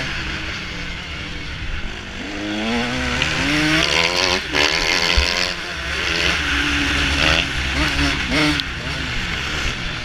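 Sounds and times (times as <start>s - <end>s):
motocross bike engine revving: 0.0s - 10.0s.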